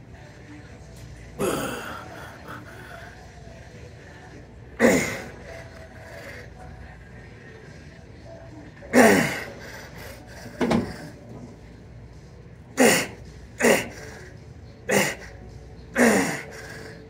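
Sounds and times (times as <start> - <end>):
man grunting with strain: 1.4 - 3.0, 16.0 - 16.9.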